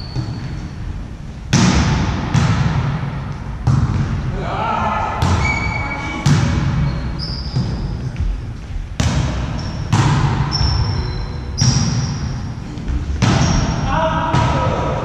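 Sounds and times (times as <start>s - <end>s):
volleyball smacks with echo: 1.5s - 4.3s, 5.2s - 5.5s, 6.2s - 6.8s, 9.0s - 10.5s, 13.2s - 14.9s
short high squeaks: 5.4s - 6.2s, 6.8s - 7.8s, 10.5s - 12.2s.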